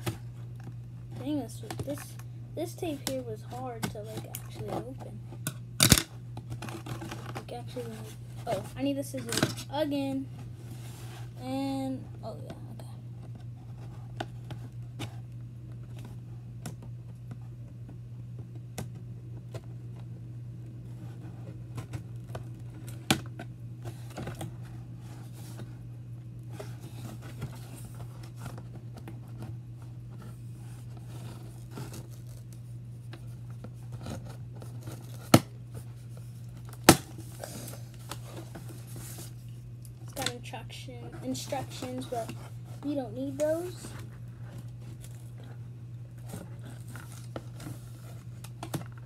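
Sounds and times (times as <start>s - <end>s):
box crinkling and scraping: 5.8s - 9.8s, 30.2s - 32.6s, 33.3s - 39.6s, 40.2s - 49.0s.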